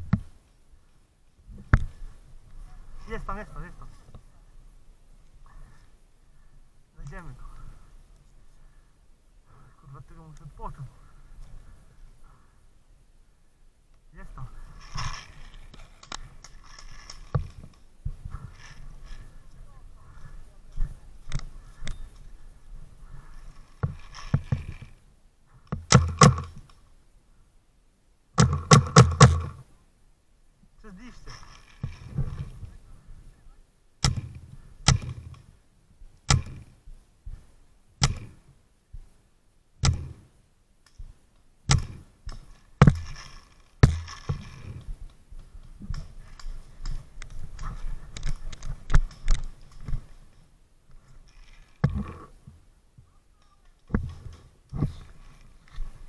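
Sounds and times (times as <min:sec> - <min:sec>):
sharp knocks and clicks: 0:25.7 - 0:26.7, 0:28.4 - 0:29.6, 0:34.0 - 0:35.5, 0:36.3 - 0:36.7, 0:38.0 - 0:38.4, 0:39.8 - 0:40.2, 0:41.7 - 0:50.1
paintball marker firing: 0:25.8 - 0:26.6, 0:28.4 - 0:29.6, 0:34.0 - 0:35.4, 0:36.3 - 0:36.7, 0:38.0 - 0:38.4, 0:39.8 - 0:40.2, 0:41.7 - 0:44.5.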